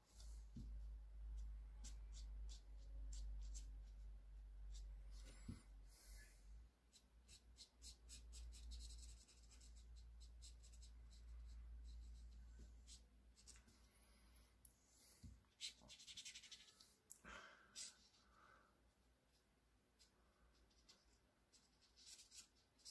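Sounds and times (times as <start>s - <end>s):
pen scratching on paper: 1.4s - 4.0s, 6.9s - 13.6s, 15.5s - 16.8s, 20.0s - 22.9s.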